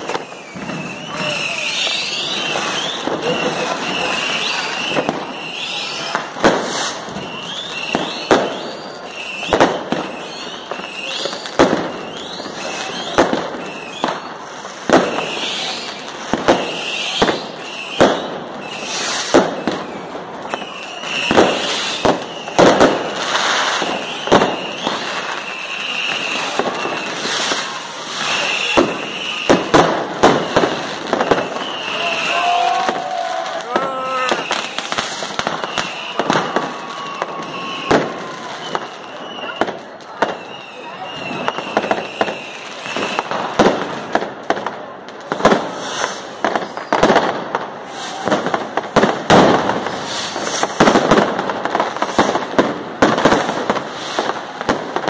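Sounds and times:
fireworks bursting: 0.0 - 55.0
fireworks crackle and hiss: 0.0 - 55.0
short high whistles: 0.2 - 6.1, 20.5 - 22.6, 23.8 - 29.7, 30.4 - 32.5, 34.1 - 39.7, 40.4 - 43.3.

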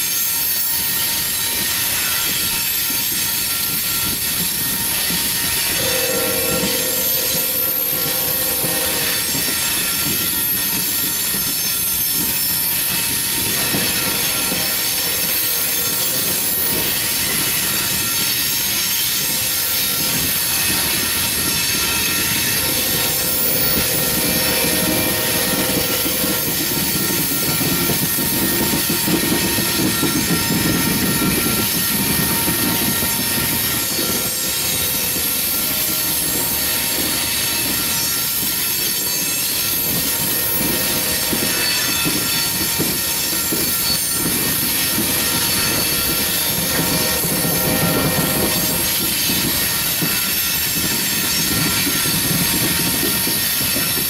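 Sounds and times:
freight cars rumbling on rails: 0.0 - 54.0
high squealing tones: 4.9 - 18.5, 19.1 - 28.3.

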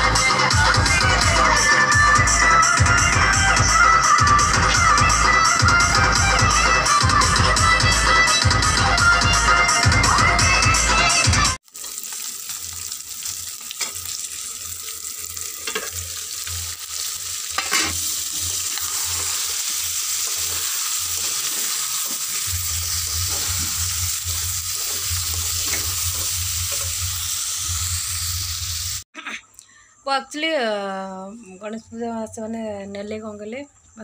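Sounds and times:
food sizzling in hot oil: 9.2 - 29.1
metal ladle scraping pan: 17.6 - 22.5.

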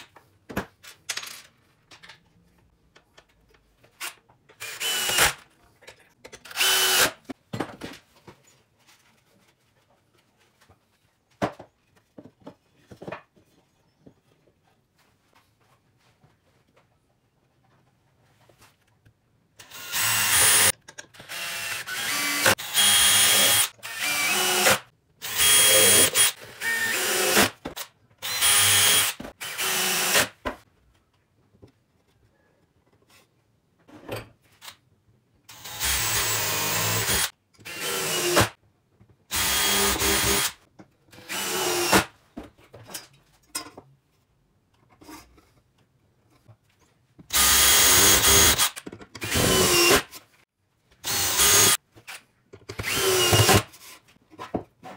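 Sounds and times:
cordless drill boring into wood: 4.6 - 5.4, 6.5 - 7.2, 19.6 - 20.7, 21.3 - 27.5, 28.2 - 30.3, 35.5 - 38.5, 39.3 - 40.6, 41.3 - 41.9, 47.3 - 50.1, 51.0 - 51.8, 52.8 - 53.7.

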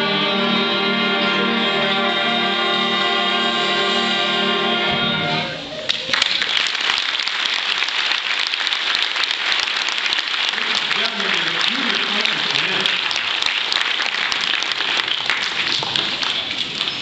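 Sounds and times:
wind band holding a chord: 0.0 - 5.7
audience applause: 5.8 - 17.0.

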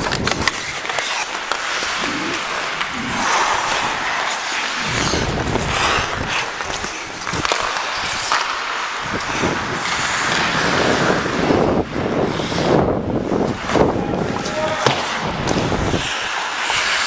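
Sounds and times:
ice skate blades scraping ice: 0.0 - 17.0
wind on microphone: 2.0 - 7.5, 9.0 - 16.1.

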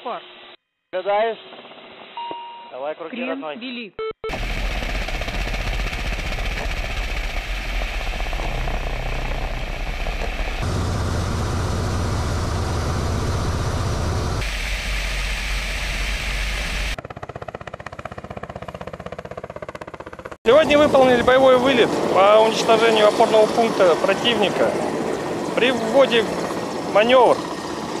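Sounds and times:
helicopter flying past: 4.3 - 14.6, 15.8 - 28.0
helicopter rotors and turbines: 4.3 - 28.0.

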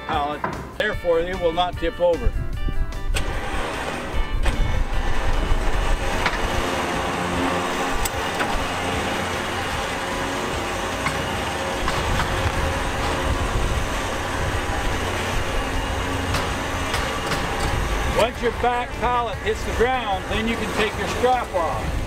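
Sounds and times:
powered push-off bar running: 3.1 - 22.0.

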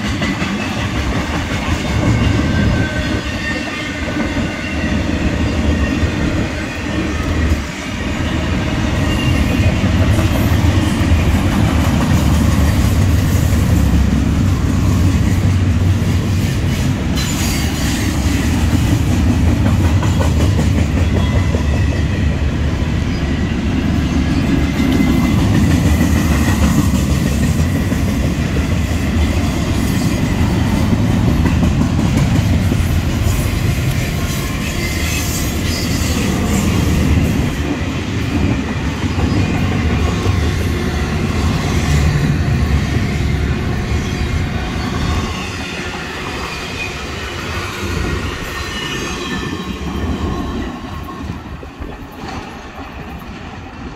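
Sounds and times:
freight train wheels rumbling on rails: 0.0 - 53.9.

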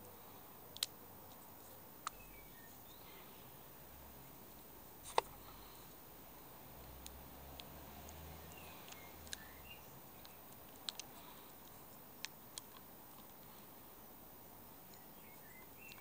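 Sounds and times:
bird chirps: 2.0 - 3.5, 8.1 - 10.5, 14.8 - 16.0.

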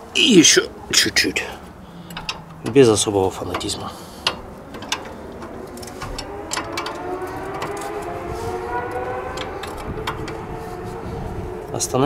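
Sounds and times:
vehicle engine droning: 0.0 - 12.0.

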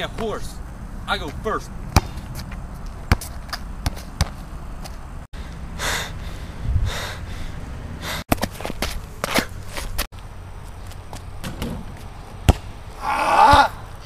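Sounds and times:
basketball bouncing on asphalt: 1.3 - 5.1, 8.3 - 10.0, 10.8 - 12.8.

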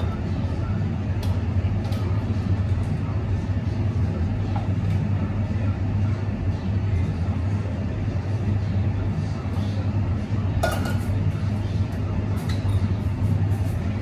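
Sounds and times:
cafe clatter: 10.4 - 14.0.

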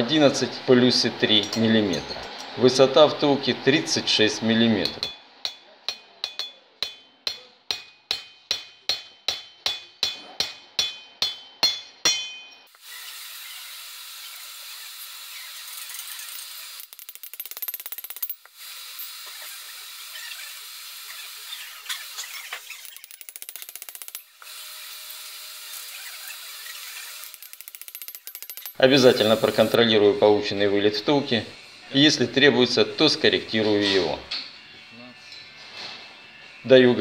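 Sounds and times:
hammer striking metal: 4.8 - 12.7
shop machine hissing whir: 28.8 - 29.8.

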